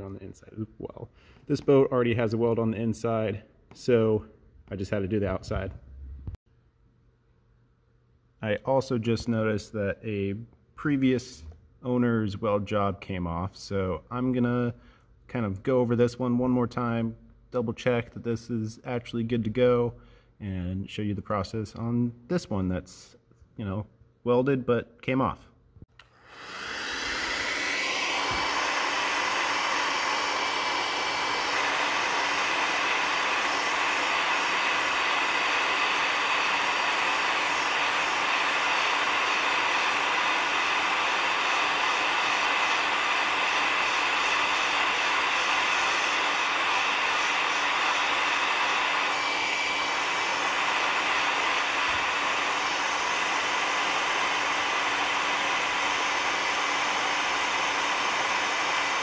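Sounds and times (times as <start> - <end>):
heat gun blowing air: 26.0 - 59.0.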